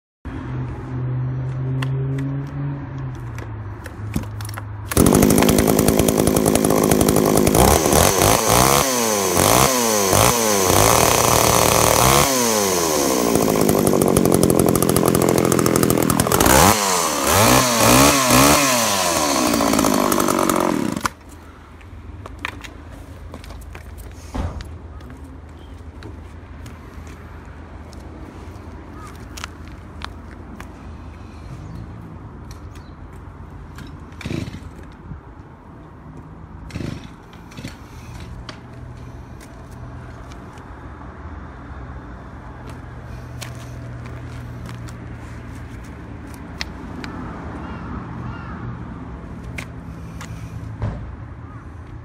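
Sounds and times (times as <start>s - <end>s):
chainsaw idling and revving: 4.9s - 21.2s, 34.1s - 34.9s, 36.6s - 39.6s.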